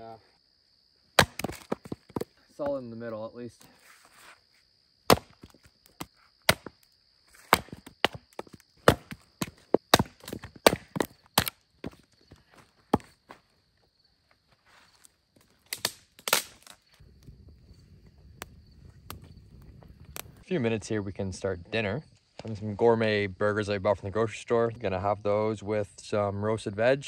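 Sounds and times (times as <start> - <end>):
hatchet splitting wood: 1.2 - 2.3, 5.1 - 6.8, 7.4 - 12.0, 15.7 - 16.8.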